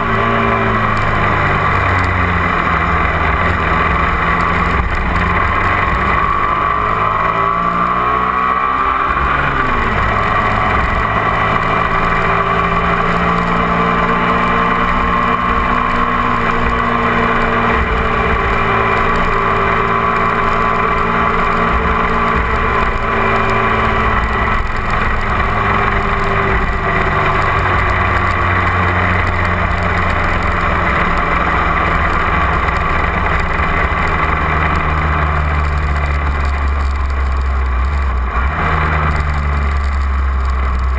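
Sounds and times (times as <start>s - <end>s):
motorcycle engine running: 0.0s - 40.9s
road rumble: 0.0s - 40.9s
wind: 0.0s - 40.9s.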